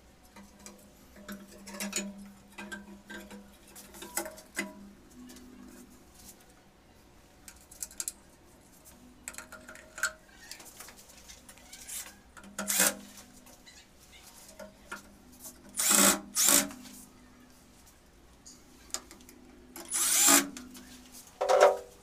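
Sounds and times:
cordless drill driving screws: 12.7 - 13.0, 15.8 - 16.7, 19.9 - 20.5.

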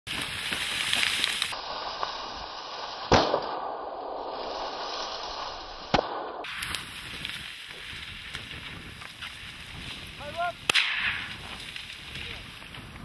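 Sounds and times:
gunshots: 3.1 - 4.3, 5.9 - 6.6, 10.6 - 11.6.

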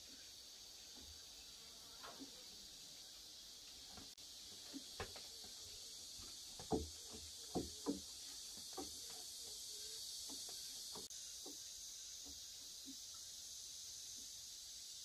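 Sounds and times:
insects chirring: 0.0 - 15.0
chickens clucking: 4.5 - 11.1.

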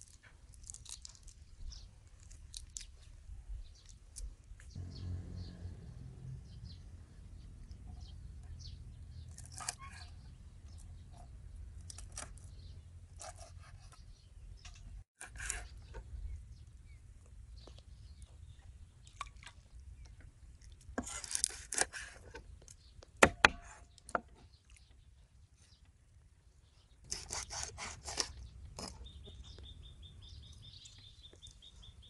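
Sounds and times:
shrimp shells crackling and scraping: 0.0 - 3.0
sharp knocks: 23.2 - 23.8.

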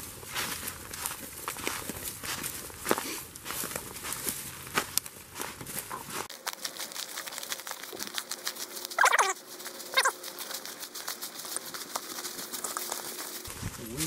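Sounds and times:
footsteps crunching through dry leaves: 0.0 - 14.0
loud wavering calls: 9.0 - 10.2.

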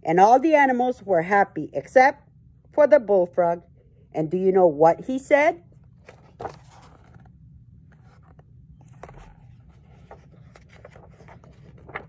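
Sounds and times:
book pages being turned: 6.0 - 12.0
pages fluttering: 8.0 - 12.0.

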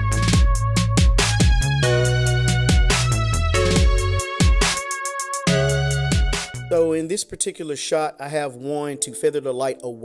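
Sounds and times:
music with bass and drum beat: 0.0 - 6.9.

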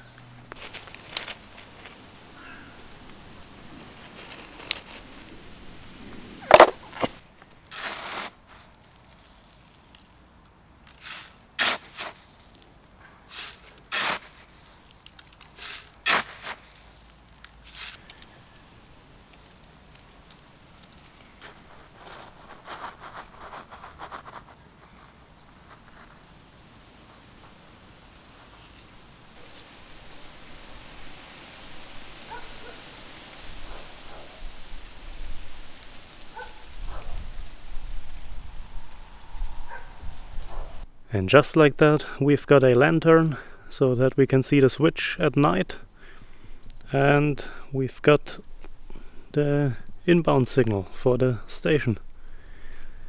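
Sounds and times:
soft rustling: 0.4 - 31.6
gravel scraped by hands: 0.5 - 30.9.

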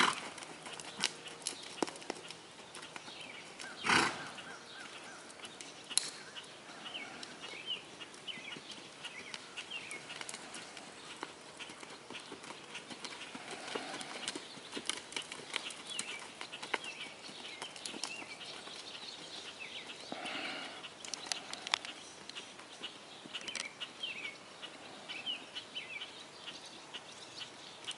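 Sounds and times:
small birds chirping: 0.0 - 27.9
hoofbeats on sand: 8.3 - 20.8.

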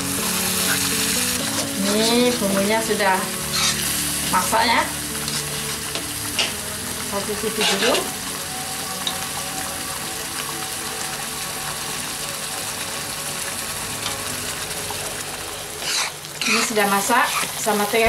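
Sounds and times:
sauce bubbling and sizzling: 0.0 - 18.0
metal spatula scraping wok: 1.4 - 2.6, 3.5 - 4.0, 15.8 - 17.6.

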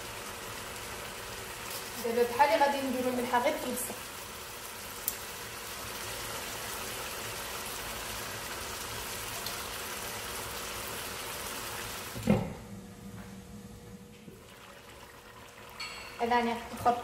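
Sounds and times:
food sizzling in a pot: 0.0 - 12.2.

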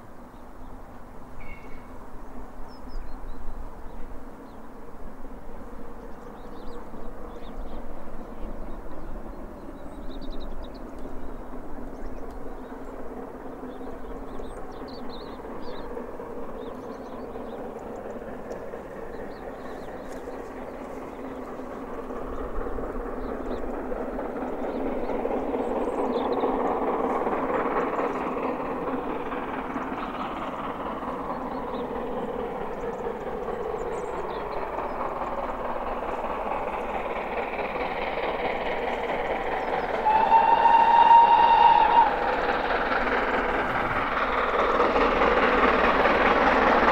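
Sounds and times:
steam locomotive exhaust chuffing: 0.0 - 46.9
steam whistle blast: 40.0 - 42.3.

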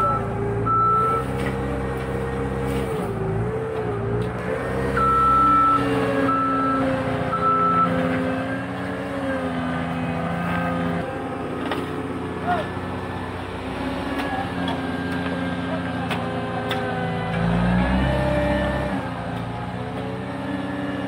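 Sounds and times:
reversing alarm beeping: 0.0 - 1.3, 4.9 - 8.0
diesel engine running: 0.0 - 21.0.

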